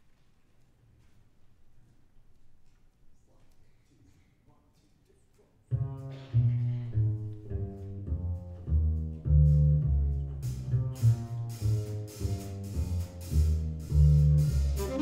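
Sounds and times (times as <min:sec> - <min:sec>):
plucked double bass: 0:05.7 - 0:15.0
drums with cymbal crashes: 0:10.6 - 0:15.0.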